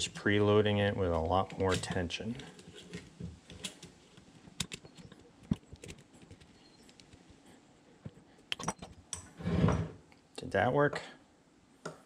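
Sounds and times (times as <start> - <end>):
vise scraping open: 9.3 - 10.0.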